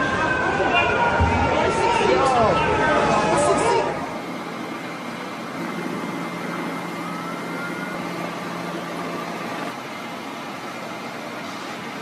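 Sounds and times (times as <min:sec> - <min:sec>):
street din: 0:00.0 - 0:07.1
fire truck engines humming: 0:00.0 - 0:12.0.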